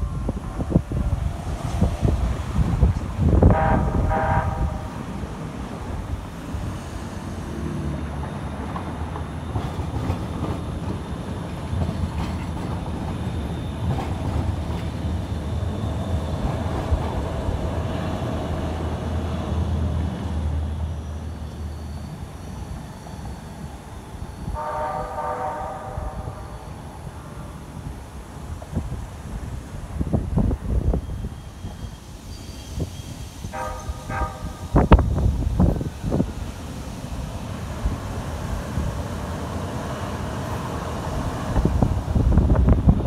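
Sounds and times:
train rumbling past: 0.0 - 43.0
train horn: 3.3 - 5.0, 24.5 - 26.7, 33.5 - 34.8
wheels clicking on rails: 7.9 - 15.2.

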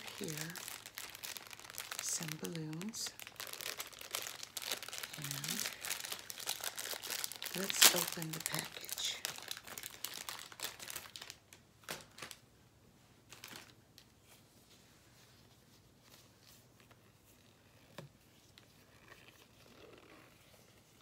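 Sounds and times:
plastic package crinkling: 0.0 - 12.4, 13.3 - 14.1
soft rustles and clicks: 13.3 - 21.0.

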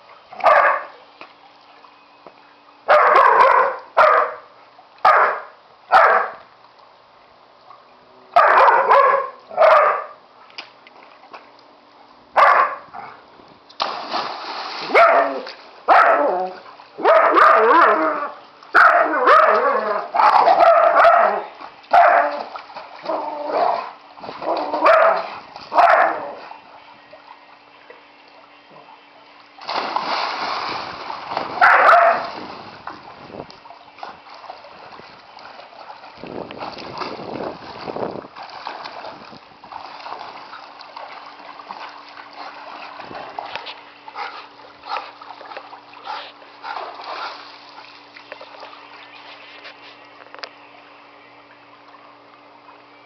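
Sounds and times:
dog barking: 0.4 - 0.9, 2.9 - 4.4, 5.0 - 6.4, 8.4 - 10.2, 12.4 - 13.1, 14.9 - 16.3, 17.0 - 18.0, 18.8 - 22.4, 24.8 - 26.3, 31.6 - 32.2
dogs splashing in water: 13.8 - 28.9, 29.5 - 49.8.

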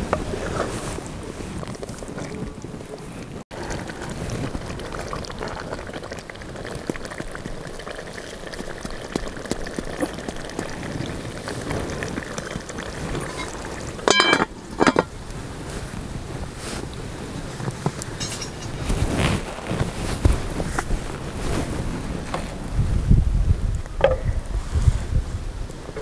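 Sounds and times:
pot simmering with hiss and pops: 0.0 - 24.4
metal lid clanging on pot: 13.3 - 15.1.

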